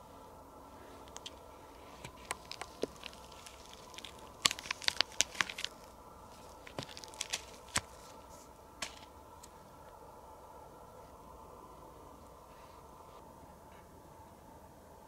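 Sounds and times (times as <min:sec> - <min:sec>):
sharp dry crackles and snaps: 0:02.0 - 0:09.5.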